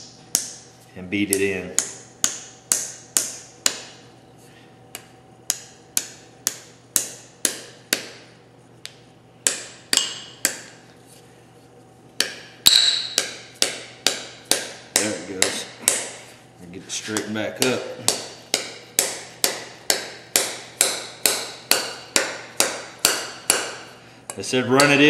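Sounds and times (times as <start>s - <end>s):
hammer striking metal wedge: 9.4s - 10.7s, 12.2s - 16.2s, 17.2s - 23.9s.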